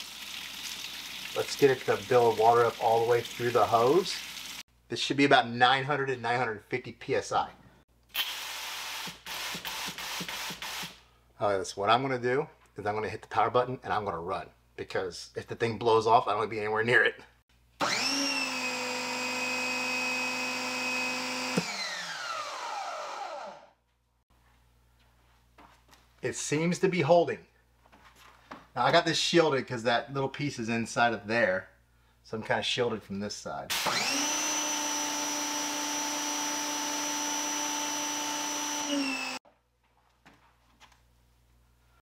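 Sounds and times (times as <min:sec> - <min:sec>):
water spraying: 0:00.0 - 0:04.6
pressure washer motor whining: 0:17.8 - 0:23.6, 0:33.7 - 0:39.4.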